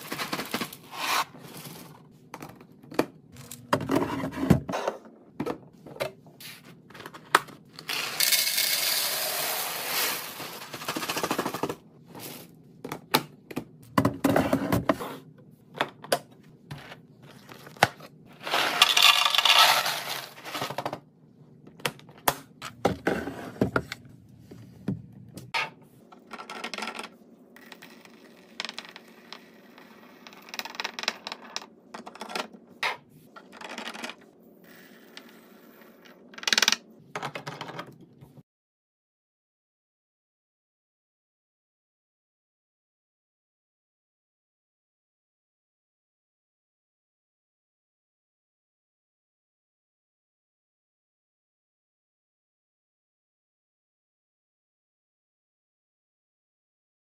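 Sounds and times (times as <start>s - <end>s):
crackers pouring into container: 0.0s - 0.9s, 7.9s - 11.6s, 18.4s - 20.4s.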